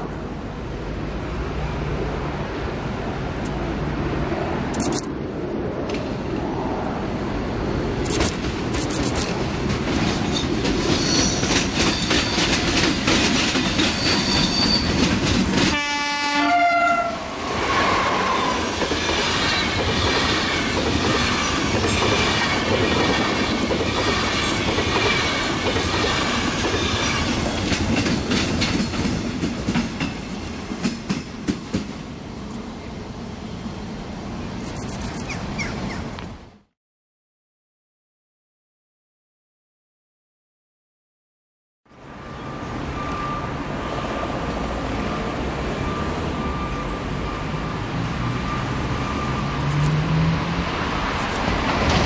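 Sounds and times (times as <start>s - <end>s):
train rumbling and rattling: 0.0s - 36.4s, 42.0s - 52.0s
wheels clicking over rail joints: 8.1s - 15.8s
train horn blast: 15.7s - 18.6s.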